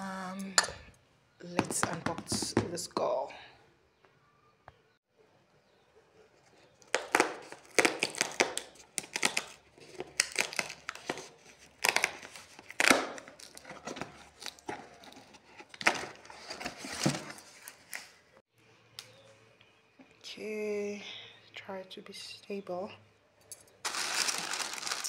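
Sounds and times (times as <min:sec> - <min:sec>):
cardboard tear strip ripping: 0:07.0 - 0:13.7
paper crinkling rustles: 0:23.8 - 0:25.0.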